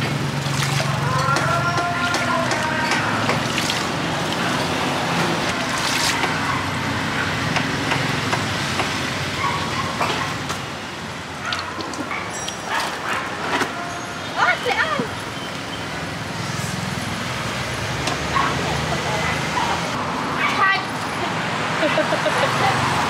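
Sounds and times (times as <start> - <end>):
water sloshing and dripping: 0.0 - 6.7, 11.3 - 13.1
street traffic hum: 0.0 - 23.0.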